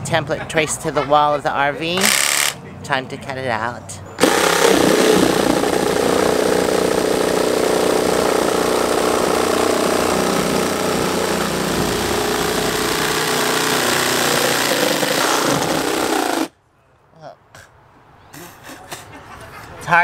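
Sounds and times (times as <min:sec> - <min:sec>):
oscillating multi-tool buzzing: 0:02.0 - 0:02.6, 0:04.2 - 0:16.5.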